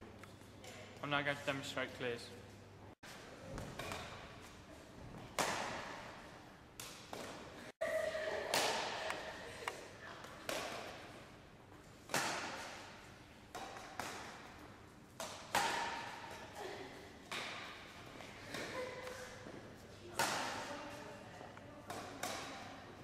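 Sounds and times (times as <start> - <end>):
racquet striking shuttlecock: 5.4 - 6.2, 6.8 - 7.5, 8.5 - 9.8, 10.4 - 11.1, 12.0 - 16.5, 17.2 - 19.2, 20.2 - 20.8, 21.9 - 22.8.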